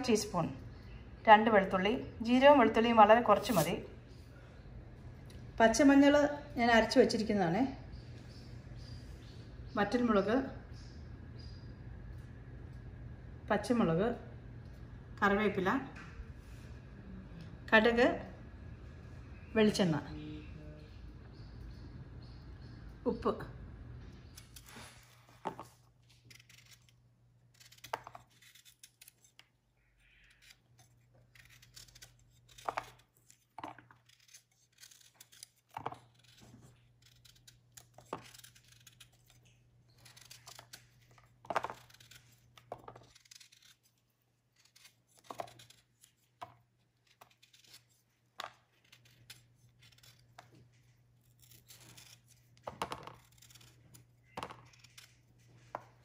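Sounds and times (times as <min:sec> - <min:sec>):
faint low hum: 0:00.0 - 0:56.0
knife scraping fruit peel: 0:02.6 - 0:04.0, 0:24.2 - 0:56.0.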